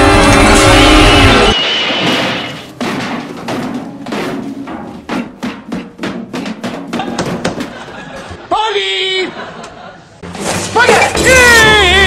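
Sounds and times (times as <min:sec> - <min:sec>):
percussive knocks and thuds: 0:02.1 - 0:08.0.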